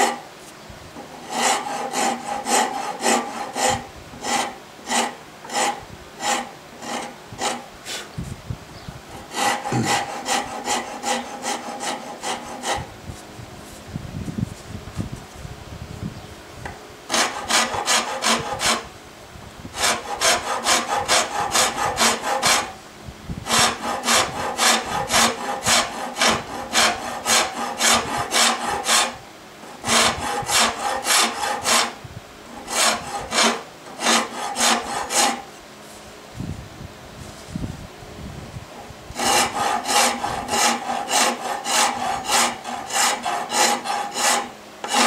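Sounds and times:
rasp filing wood: 0:00.0 - 0:00.2, 0:01.1 - 0:08.1, 0:09.1 - 0:12.9, 0:17.1 - 0:18.9, 0:19.8 - 0:22.8, 0:23.4 - 0:35.5, 0:39.1 - 0:45.0.

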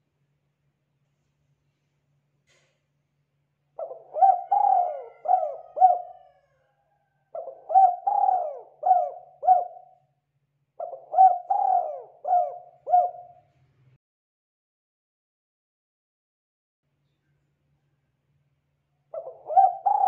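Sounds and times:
dove cooing: 0:03.8 - 0:06.5, 0:07.3 - 0:10.0, 0:10.8 - 0:13.4, 0:19.2 - 0:20.0.

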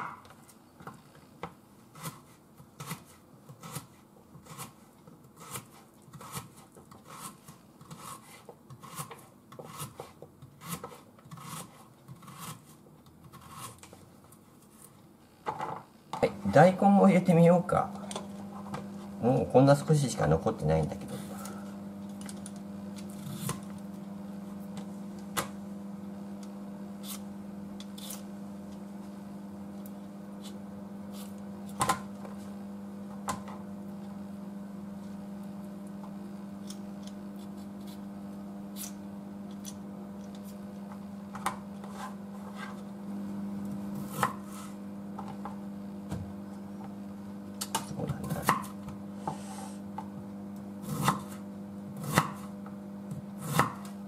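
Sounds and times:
steady low hum: 0:14.6 - 0:54.0
radish being peeled: 0:27.0 - 0:28.3.

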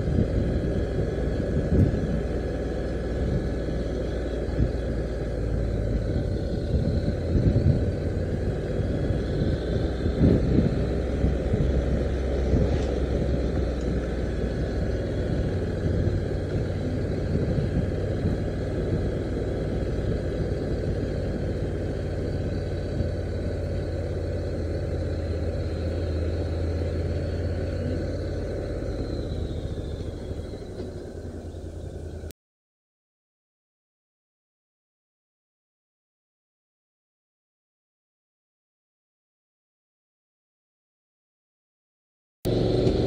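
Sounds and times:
motorcycle engine running: 0:00.0 - 0:32.3, 0:42.5 - 0:43.0
road and wind rumble: 0:00.0 - 0:32.3, 0:42.5 - 0:43.0.

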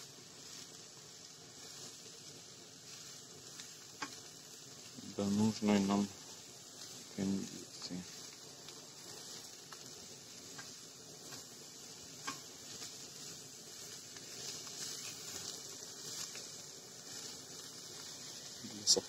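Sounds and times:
mushrooms sizzling in a pan: 0:00.0 - 0:19.0
spatula scraping and clicking: 0:12.2 - 0:12.5.

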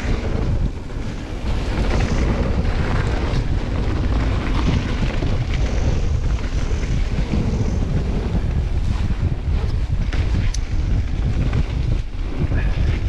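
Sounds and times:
bike clattering over bumps: 0:00.0 - 0:13.0
tyres rumbling on dirt trail: 0:00.0 - 0:13.0
wind buffeting microphone: 0:00.0 - 0:13.0.

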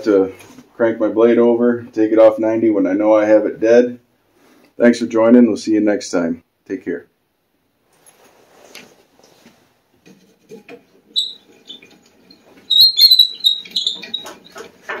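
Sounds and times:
rustling and light knocks: 0:07.9 - 0:12.7
short high squeaks: 0:11.2 - 0:14.7.

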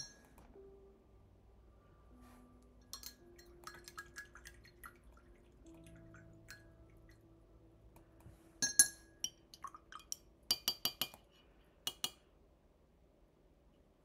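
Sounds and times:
paintbrush clinking against glass jar: 0:00.0 - 0:00.4, 0:02.8 - 0:05.0, 0:08.6 - 0:11.2.

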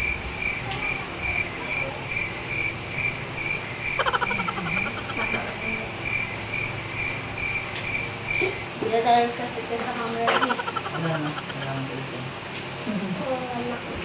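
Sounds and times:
insect chirping: 0:00.0 - 0:08.7, 0:10.3 - 0:11.7.

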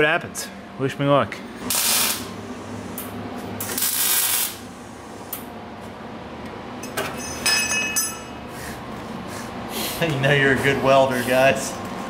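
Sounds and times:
welding torch hiss: 0:01.6 - 0:02.3, 0:02.9 - 0:04.8
high-pitched welding whine: 0:01.6 - 0:05.4.

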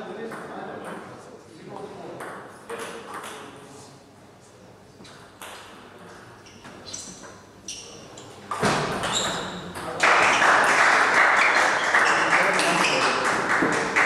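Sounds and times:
crowd noise: 0:08.7 - 0:14.0.

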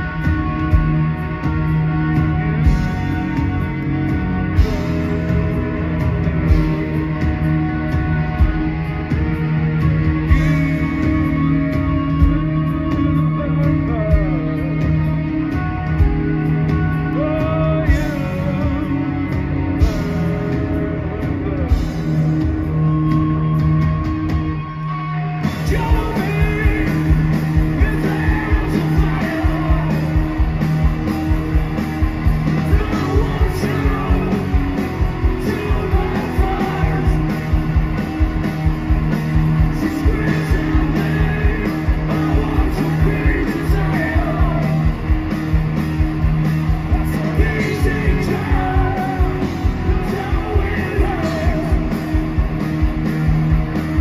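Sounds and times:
bass guitar: 0:00.0 - 0:54.0
distorted electric guitars: 0:00.0 - 0:54.0
fast hard-hit drums: 0:00.0 - 0:54.0
sung and yelled vocals: 0:15.5 - 0:20.3, 0:25.2 - 0:45.6, 0:46.7 - 0:52.6.

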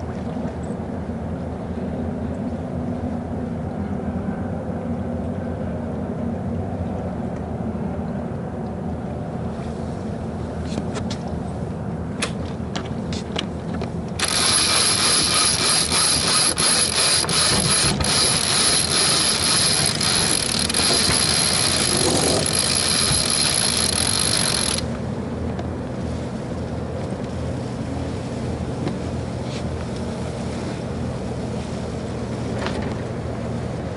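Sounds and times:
water noise: 0:00.0 - 0:03.6, 0:06.0 - 0:33.9
wind: 0:00.0 - 0:33.9
winch ratcheting: 0:14.1 - 0:24.9.

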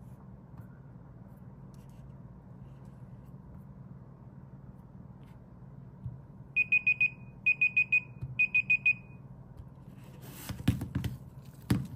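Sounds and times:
phone timer alarm beeping: 0:06.6 - 0:09.2.

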